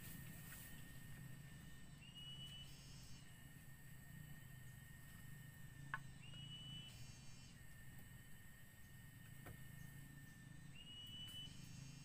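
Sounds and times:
low hum: 0.0s - 12.0s
rising whistle-like calls: 1.9s - 3.3s, 6.1s - 7.6s, 10.7s - 12.0s.

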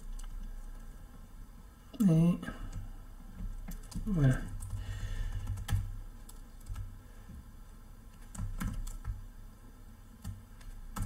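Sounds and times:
steady low hum: 0.0s - 11.0s
computer keyboard typing: 2.6s - 7.0s, 8.1s - 9.3s, 10.2s - 11.0s.

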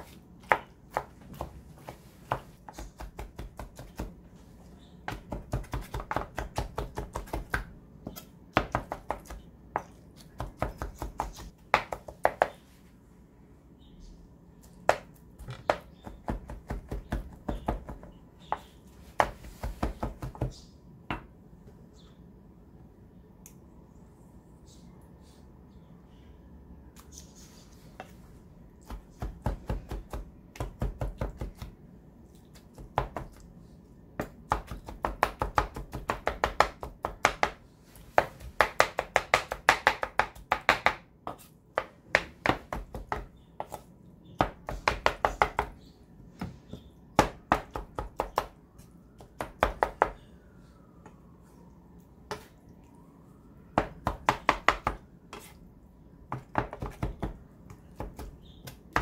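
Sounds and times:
knife chopping on cutting board: 56.3s - 59.0s.

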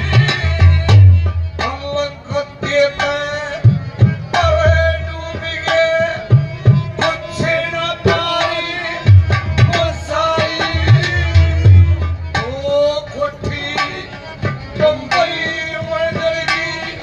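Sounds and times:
hand drum beat: 9.1s - 12.6s.

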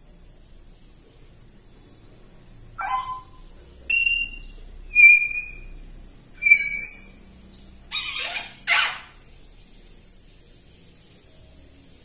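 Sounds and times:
parrot rasping calls: 2.8s - 5.7s, 6.4s - 7.2s, 7.9s - 9.2s
parrot whistling: 2.8s - 5.7s, 6.4s - 7.2s.

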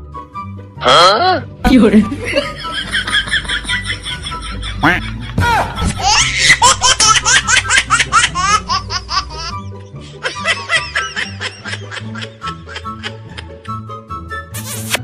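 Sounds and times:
high-pitched giggling laughter: 2.3s - 9.6s.

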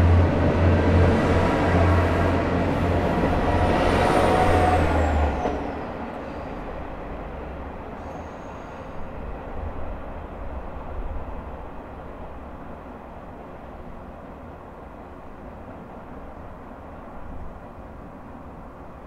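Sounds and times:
diesel railcar engine hum: 0.0s - 19.0s
train rumble: 0.0s - 19.0s.

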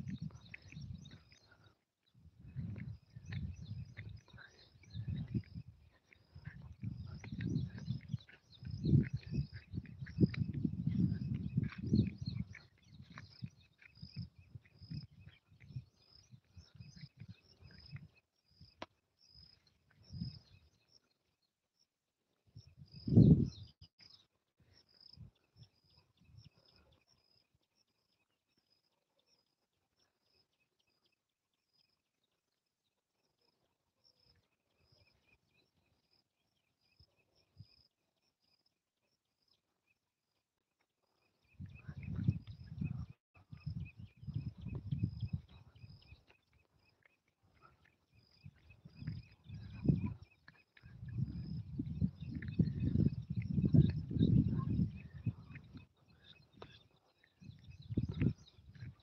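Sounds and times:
soft low thumps: 2.3s - 5.6s.

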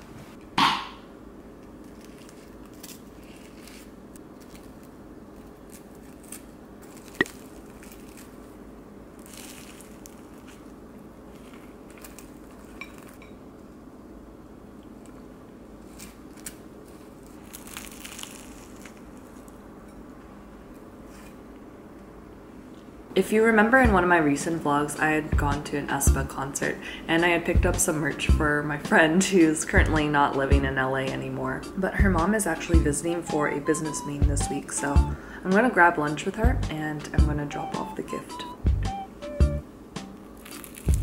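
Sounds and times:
croissant crust crackling: 1.5s - 13.8s, 14.8s - 21.7s, 40.1s - 41.0s.

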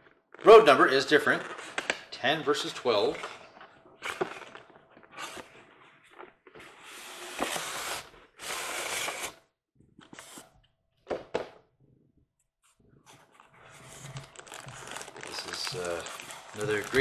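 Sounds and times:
packaging rustling: 2.9s - 9.3s, 13.2s - 17.0s
cardboard box scraping and rubbing: 6.6s - 9.3s.

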